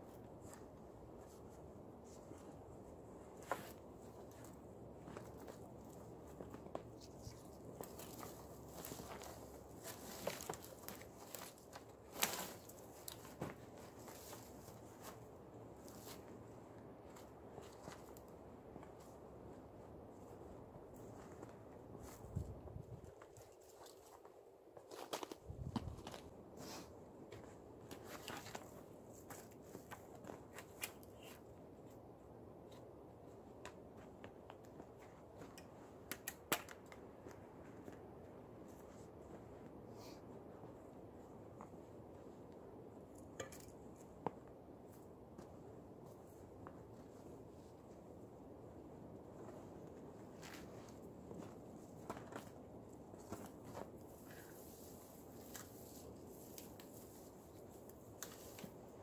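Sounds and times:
twigs and snow crunching underfoot: 0.0s - 32.0s, 40.6s - 59.0s
wooden poles and branches clicking: 35.4s - 37.4s.

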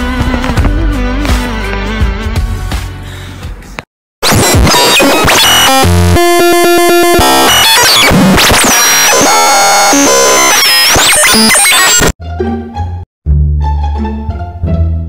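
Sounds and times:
electronic synthesizer music: 4.2s - 13.0s.

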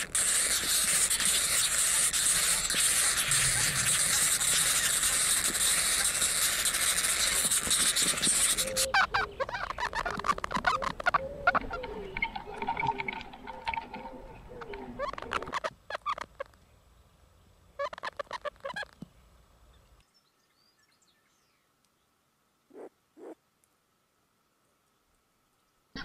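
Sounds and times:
loud steady hiss: 0.0s - 9.0s
ducks calling: 0.0s - 16.6s
birds chirping: 0.1s - 21.7s.

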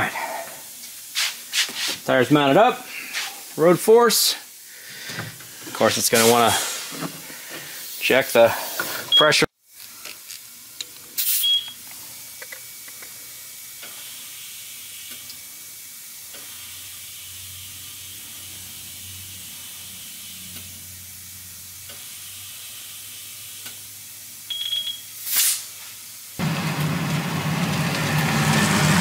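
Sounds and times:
compressed air hissing: 0.0s - 2.1s, 2.8s - 9.1s, 11.1s - 12.4s, 13.8s - 24.1s, 25.2s - 26.1s.

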